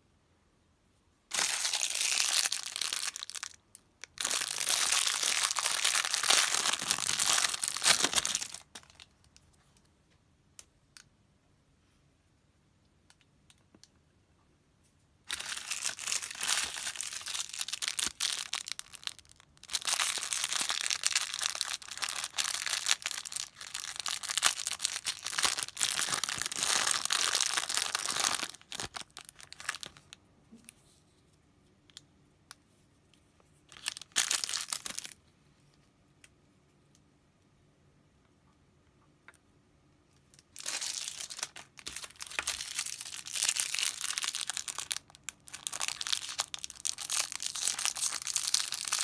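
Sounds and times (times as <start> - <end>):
plastic bag crinkling and tearing: 1.3 - 9.1, 15.3 - 30.2, 33.7 - 35.2, 40.4 - 49.0.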